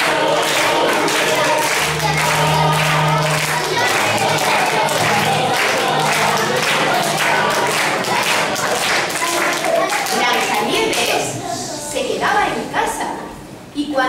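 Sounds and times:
song with singing: 0.0s - 10.0s
clapping beat: 0.0s - 11.2s.

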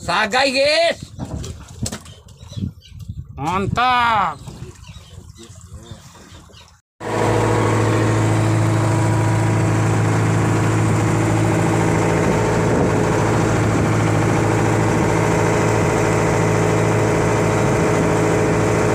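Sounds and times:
boat engine humming: 4.1s - 18.9s.

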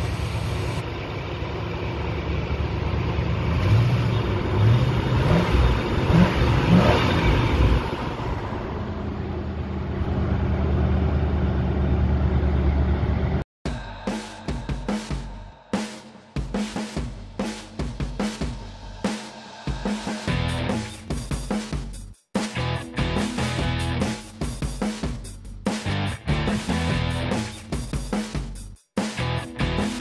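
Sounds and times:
car engine idling and revving: 0.0s - 13.5s, 22.6s - 24.3s.

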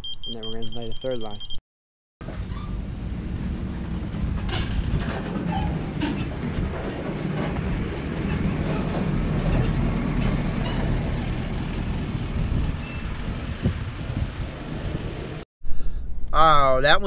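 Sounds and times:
diesel engine rumbling: 2.2s - 15.4s.

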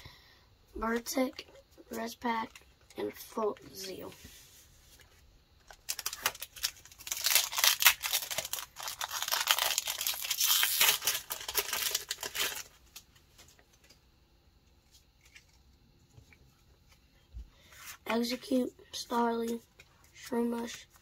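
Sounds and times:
foil wrapper crinkling and tearing: 5.6s - 13.0s.

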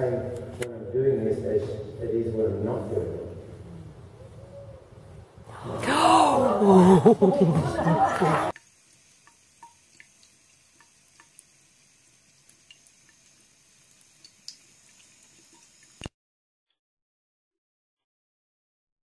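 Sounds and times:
tap water trickling into sink: 8.6s - 11.6s.

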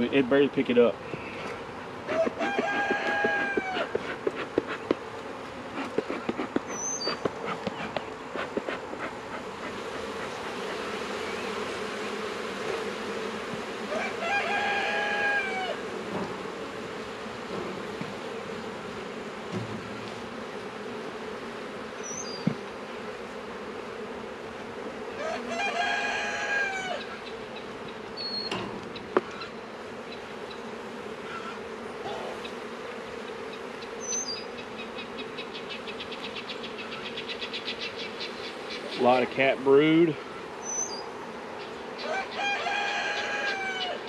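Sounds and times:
honeybees buzzing: 0.0s - 44.0s
rooster crowing: 2.1s - 3.9s, 13.9s - 15.8s, 25.2s - 27.2s, 42.0s - 44.0s.

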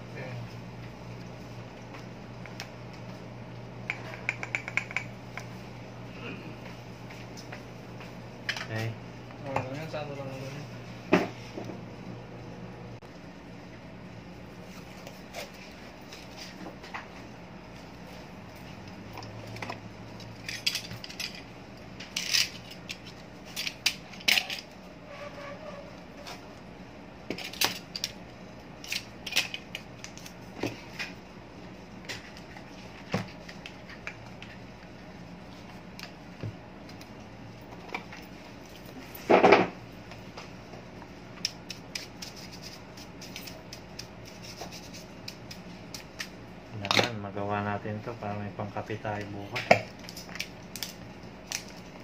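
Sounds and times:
clicks and rustles of small parts: 18.6s - 24.8s, 27.3s - 28.2s, 28.8s - 31.2s.

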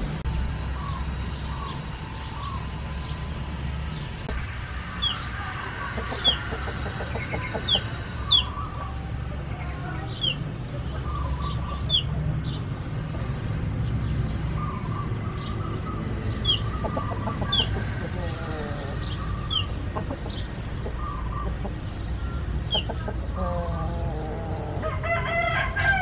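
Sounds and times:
chickens clucking: 4.7s - 12.1s, 16.4s - 25.2s.

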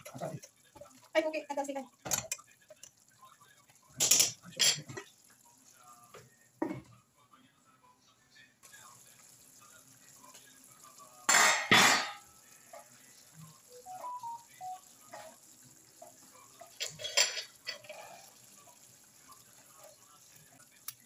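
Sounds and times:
metal cookware clattering: 2.0s - 2.4s, 3.9s - 5.1s, 11.3s - 12.2s, 16.5s - 18.3s.

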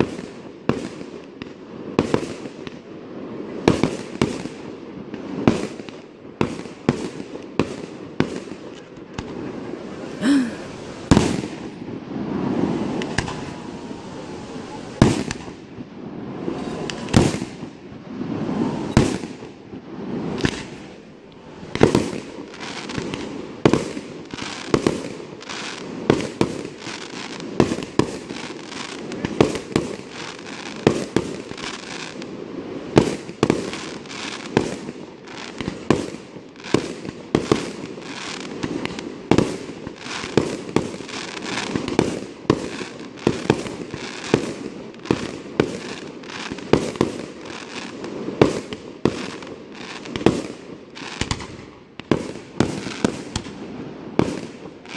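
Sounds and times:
firework shells bursting: 12.3s - 15.5s.

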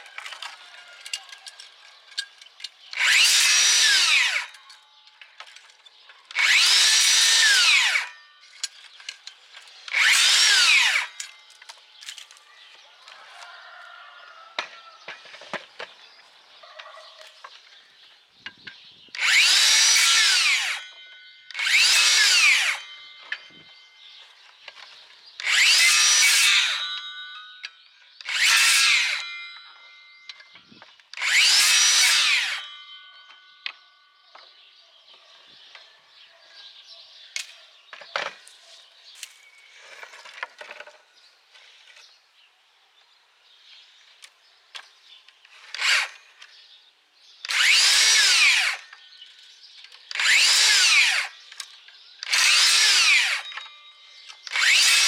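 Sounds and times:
circular saw cutting branches: 0.0s - 13.8s, 19.1s - 33.8s, 45.0s - 46.8s, 47.4s - 55.0s.

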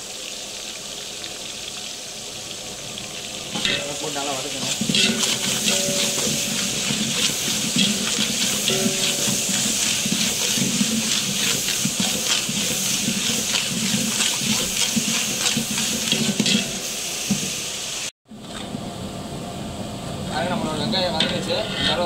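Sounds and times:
onions sizzling in oil: 0.0s - 18.2s
metal ladle scraping pot: 3.5s - 17.5s, 21.1s - 22.0s.

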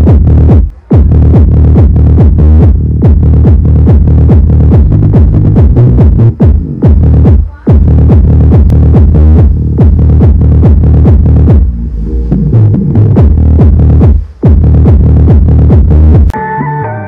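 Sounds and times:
techno music with heavy bass: 0.0s - 16.4s.

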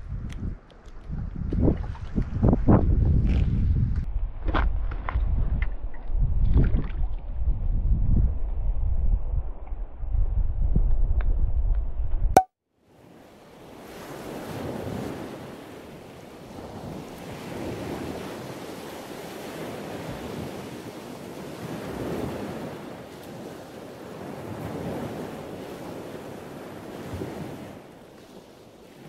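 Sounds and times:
wind buffeting microphone: 0.0s - 12.3s
surf washing on shore: 13.0s - 29.0s.

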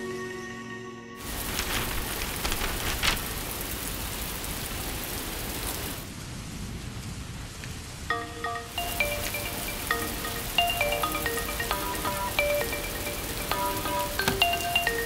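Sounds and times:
chime-like notes: 0.0s - 1.2s, 8.1s - 15.0s
water pouring from roof edge: 1.2s - 6.0s
heavy rain falling: 1.2s - 15.0s.

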